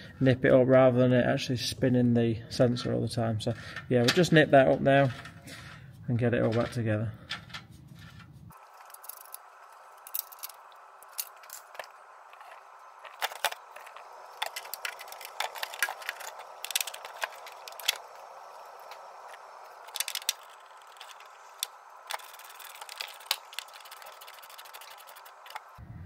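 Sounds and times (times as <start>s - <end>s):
faint steady hum: 0.0s - 26.0s
connector clicks and rattles: 10.0s - 25.8s.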